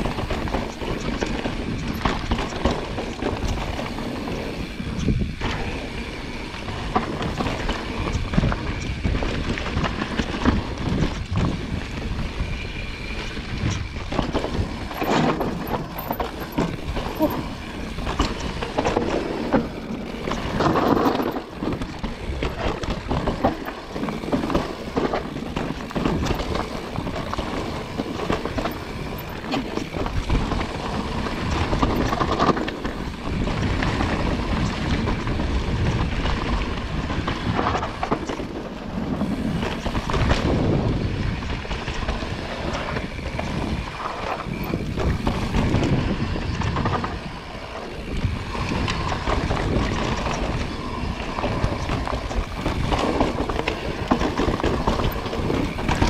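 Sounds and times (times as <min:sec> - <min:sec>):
bike tyre rumble on dirt: 0:00.0 - 0:56.0
bike clattering over rocks: 0:13.6 - 0:36.6.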